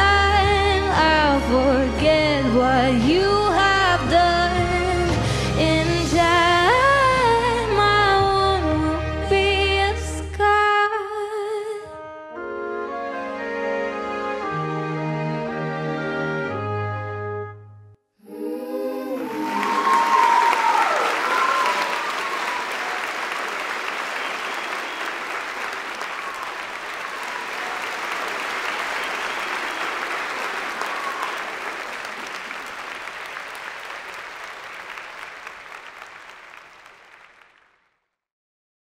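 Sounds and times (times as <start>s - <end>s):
cheers: 18.3s - 37.4s
audience applauding: 18.9s - 37.8s.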